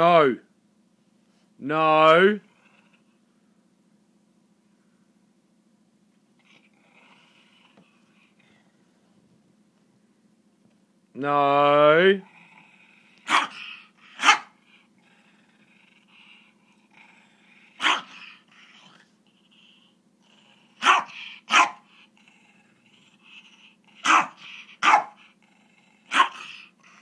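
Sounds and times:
dog barking sharply: 0:13.3 - 0:14.5, 0:17.8 - 0:18.3, 0:20.8 - 0:21.8, 0:24.0 - 0:25.2, 0:26.1 - 0:26.6.

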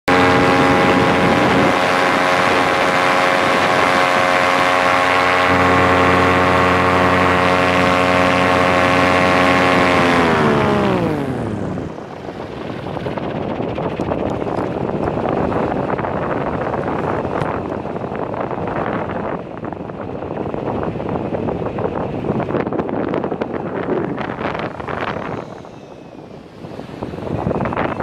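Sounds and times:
paramotor engine and propeller: 0:00.1 - 0:28.0
wind on microphone: 0:00.1 - 0:28.0.

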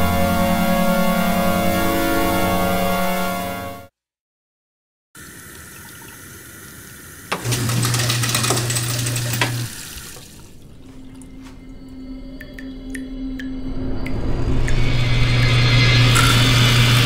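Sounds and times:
tap water running into sink: 0:05.2 - 0:11.3.

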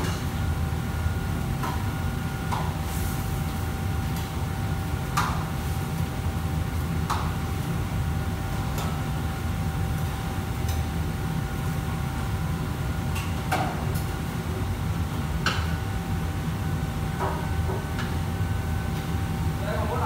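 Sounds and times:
low rumble of wok burners: 0:00.0 - 0:20.0.

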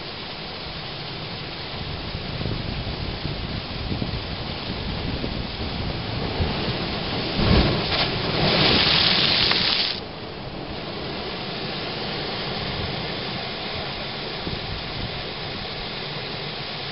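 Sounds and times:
rushing hiss of water and air: 0:00.0 - 0:16.9
surf washing: 0:00.0 - 0:16.9.

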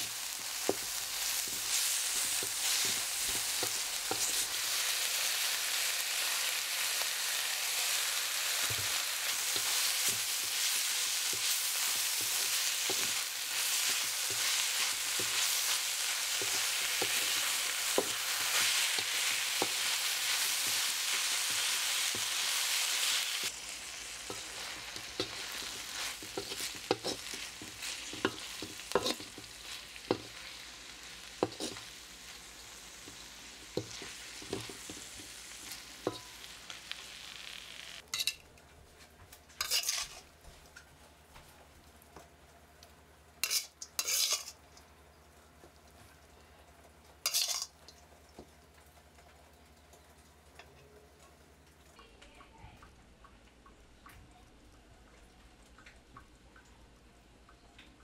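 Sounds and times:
spatula scraping metal wok: 0:00.0 - 0:36.5, 0:39.6 - 0:40.3, 0:43.4 - 0:44.6, 0:47.2 - 0:47.7
food sizzling in a wok: 0:00.0 - 0:38.4, 0:39.6 - 0:40.3, 0:43.4 - 0:44.6, 0:47.1 - 0:48.5.

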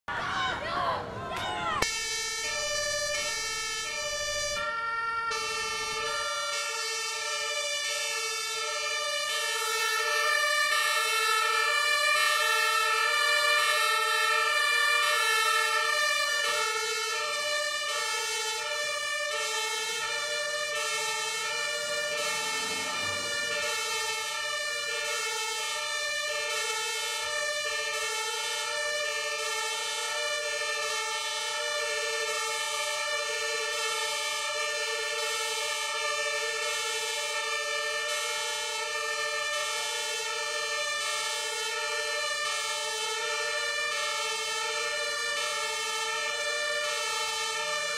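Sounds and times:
two-tone fire engine siren: 0:00.2 - 0:47.9
vehicle driving past: 0:21.8 - 0:24.5.

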